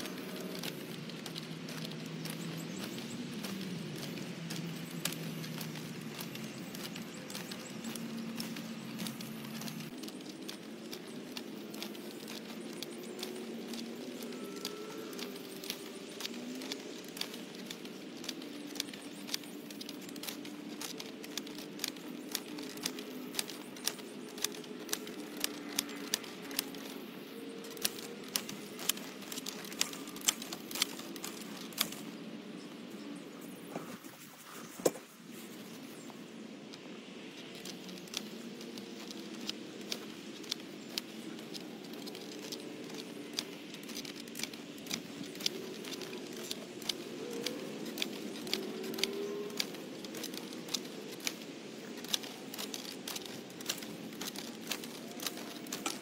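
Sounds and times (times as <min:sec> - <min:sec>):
wheel hoe clicking and clattering: 0:00.0 - 0:32.2, 0:37.4 - 0:56.0.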